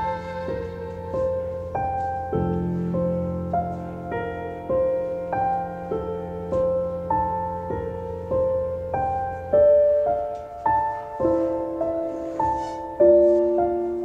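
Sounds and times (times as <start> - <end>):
held low tone: 0.0 - 3.9
slow sad piano music: 0.0 - 14.0.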